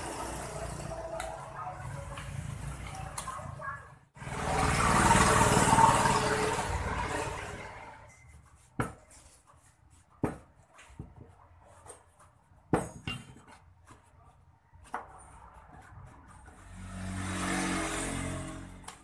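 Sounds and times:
pvc pipe rings knocking on workbench: 12.7 - 13.6.

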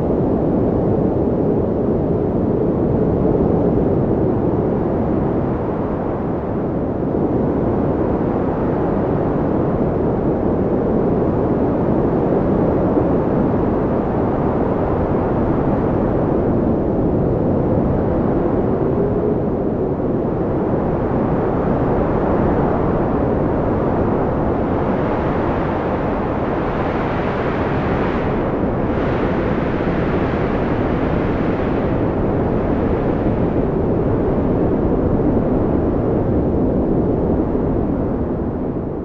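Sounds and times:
storm wind buffeting microphone: 0.0 - 39.0.

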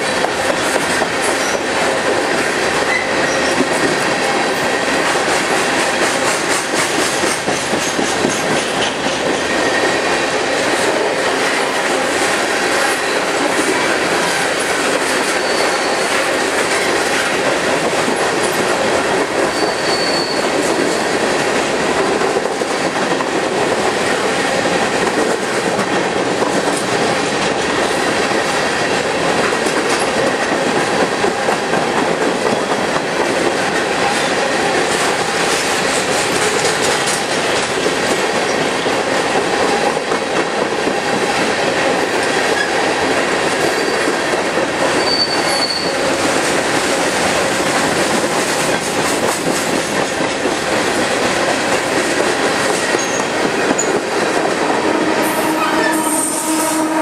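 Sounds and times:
train wheels rumbling on rails: 0.0 - 57.0
high wheel squeal: 2.9 - 3.7, 15.2 - 16.3, 19.4 - 21.1, 43.7 - 44.1, 45.0 - 46.1
clatter over rail joints: 5.3 - 9.5, 29.3 - 38.7, 43.6 - 54.6.

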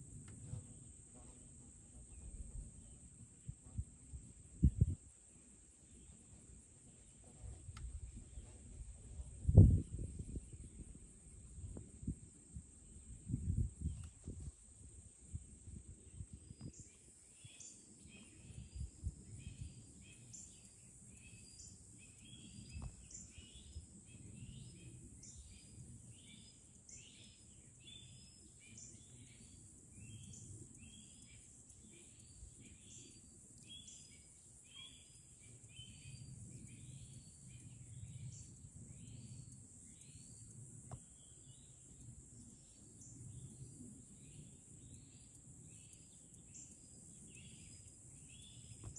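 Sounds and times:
constant high hiss: 0.0 - 48.9
wind rumble on microphone: 1.9 - 5.3, 5.9 - 20.4, 21.1 - 26.2.

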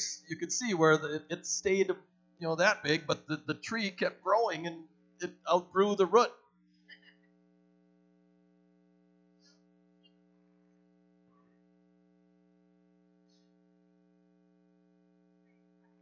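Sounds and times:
faint electrical hum: 0.0 - 8.2.

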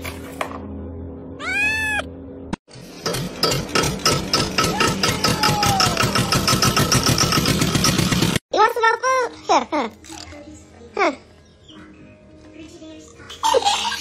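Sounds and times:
cat meowing: 1.4 - 2.1.

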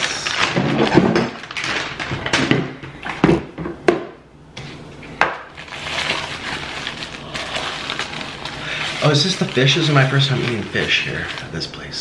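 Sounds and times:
paper rustling: 0.0 - 2.4, 5.5 - 12.0
paper wrapper being opened: 0.0 - 2.4, 5.5 - 12.0.

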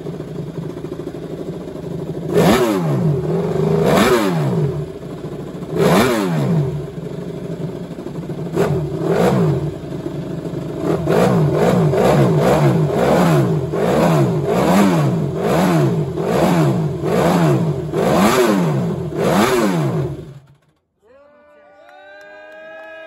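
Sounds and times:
motorcycle engine revving: 0.0 - 20.8.

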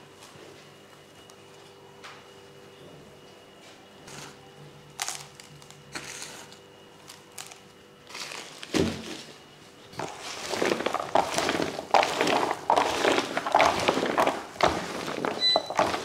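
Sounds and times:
hands mixing chopped meat: 8.1 - 16.0.

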